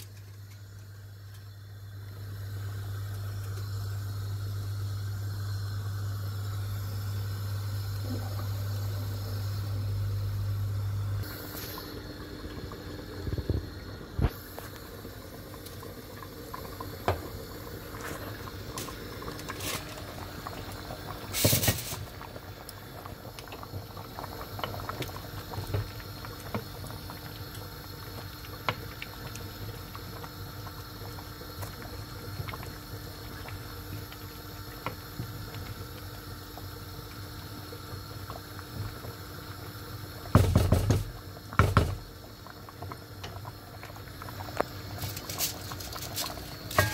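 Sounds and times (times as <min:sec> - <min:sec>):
pot bubbling at a boil: 0:00.0 - 0:46.9.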